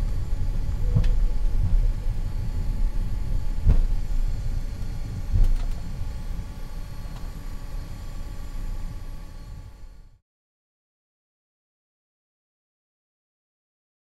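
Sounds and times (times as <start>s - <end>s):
faint jet engine whine: 0.0s - 10.2s
jet engines idling rumble: 0.0s - 10.2s.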